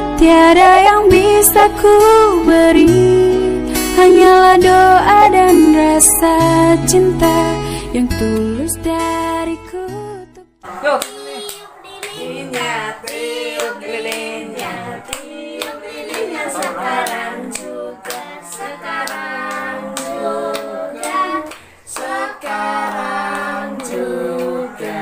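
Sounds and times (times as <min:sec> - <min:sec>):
rhythmic hand clapping: 0:10.6 - 0:25.0
voices singing birthday song: 0:10.6 - 0:25.0.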